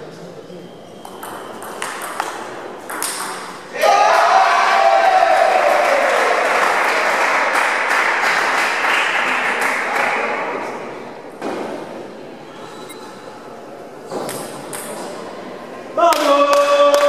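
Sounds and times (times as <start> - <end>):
applause: 5.1 - 10.4.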